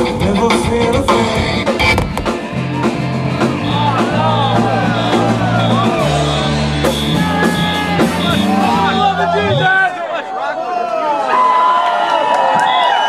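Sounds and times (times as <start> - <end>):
live rock band playing: 0.0 - 9.7
held bass notes: 0.0 - 9.8
drums: 0.0 - 9.9
bending melodic lines: 1.2 - 9.7.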